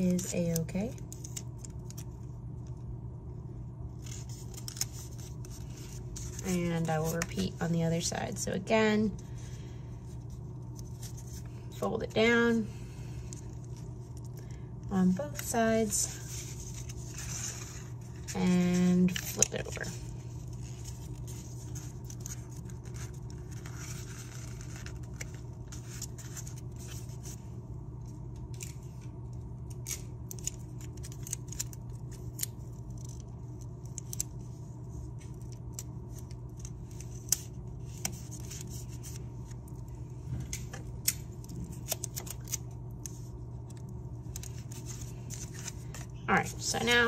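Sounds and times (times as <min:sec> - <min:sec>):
paper crinkling and rustling: 0:04.0 - 0:07.6, 0:09.2 - 0:11.7, 0:15.3 - 0:47.0.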